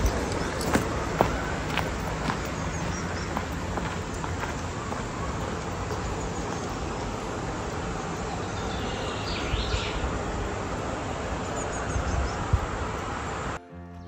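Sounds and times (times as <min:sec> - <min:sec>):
rushing outdoor noise: 0:00.0 - 0:14.0.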